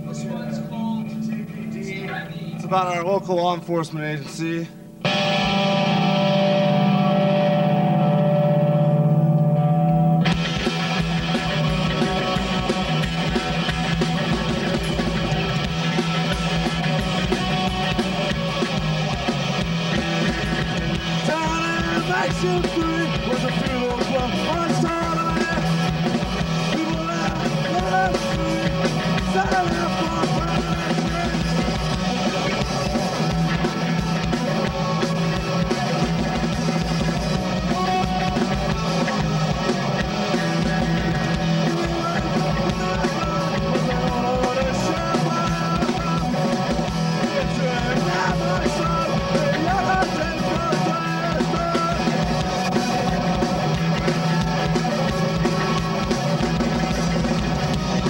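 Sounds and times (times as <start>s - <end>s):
drum kit: 0.0s - 58.0s
electric guitar: 0.0s - 58.0s
electric bass: 4.2s - 58.0s.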